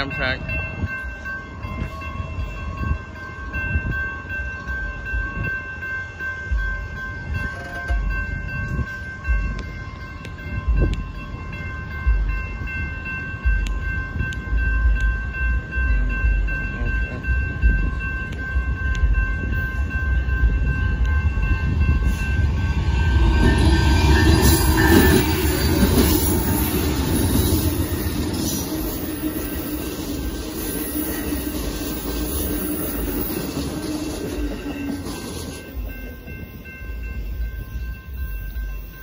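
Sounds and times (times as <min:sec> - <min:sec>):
diesel locomotives passing: 0:00.0 - 0:39.0
railroad crossing signal ringing: 0:00.0 - 0:39.0
wind buffeting microphone: 0:06.5 - 0:35.2.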